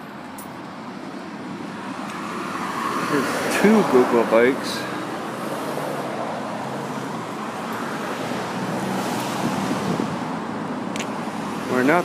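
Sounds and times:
cars driving past: 0.0s - 12.0s.

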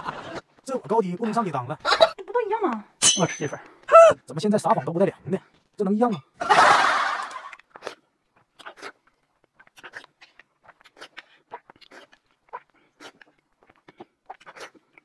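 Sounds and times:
quiet chewing: 7.5s - 15.0s.

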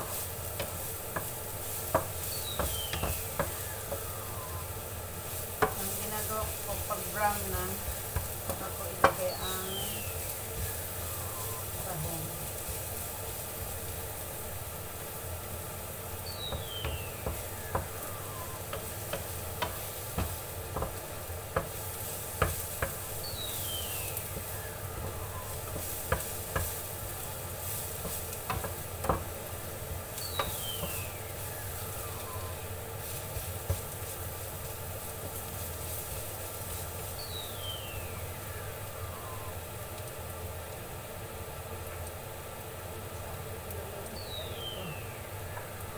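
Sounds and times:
garlic sizzling in oil: 0.0s - 45.9s
spatula knocking against pan: 0.6s - 4.1s, 7.8s - 9.2s, 16.5s - 18.0s, 18.7s - 23.6s, 24.3s - 26.8s, 27.9s - 29.4s, 30.4s - 31.0s.

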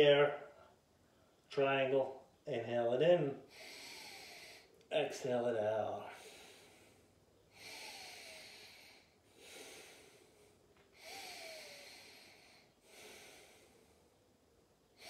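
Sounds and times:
person breathing deeply: 3.4s - 4.8s, 6.1s - 14.2s.

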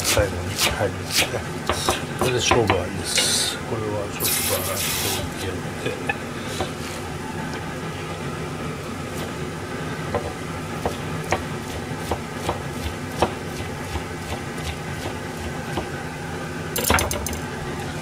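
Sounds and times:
knife chopping on cutting board: 0.0s - 2.8s, 10.1s - 15.9s
steady background hum: 0.0s - 18.0s.

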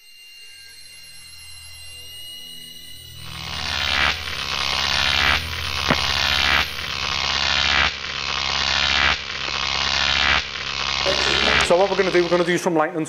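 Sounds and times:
steady low electrical hum: 3.2s - 12.6s
static hiss: 3.2s - 12.7s.

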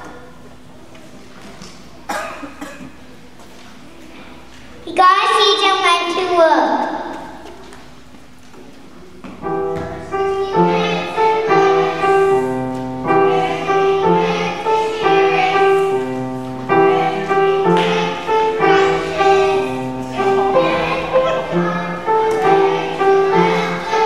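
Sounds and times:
upright piano playing chords: 9.4s - 24.0s.

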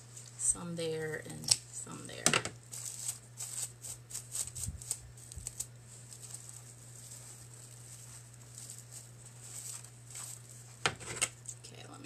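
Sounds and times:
steady low hum: 0.0s - 12.0s
fabric rustling: 2.6s - 11.6s.

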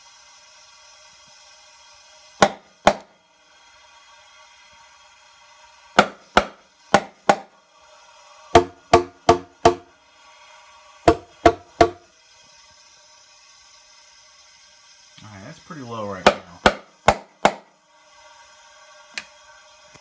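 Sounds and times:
faint steady hiss: 0.0s - 20.0s
hammer tapping on metal: 6.0s - 7.4s, 8.6s - 9.9s, 11.1s - 12.0s, 16.2s - 17.6s.

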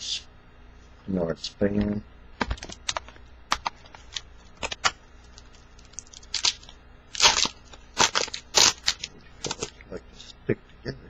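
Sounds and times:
foil wrapper crinkling and tearing: 2.5s - 9.8s.

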